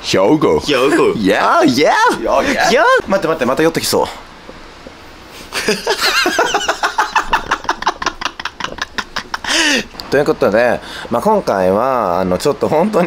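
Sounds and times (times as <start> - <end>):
men laughing hard: 5.5 - 10.0.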